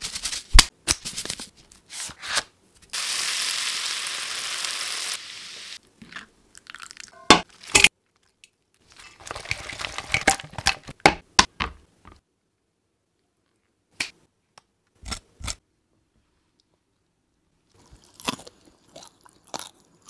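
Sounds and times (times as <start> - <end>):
hot oil sizzling: 2.9 - 5.8.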